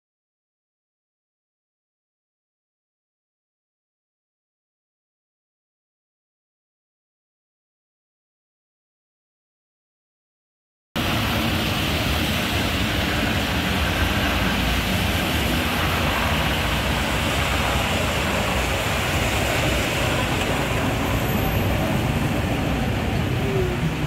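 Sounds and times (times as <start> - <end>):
street noise hiss: 11.0 - 24.0
tram rumbling on rails: 11.0 - 24.0.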